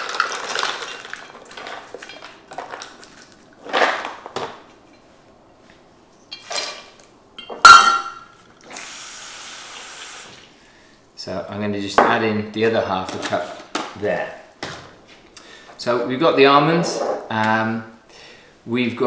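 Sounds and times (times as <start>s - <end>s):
glass jar and metal cup clinking: 7.4s - 8.3s
loud clank: 7.6s - 8.4s.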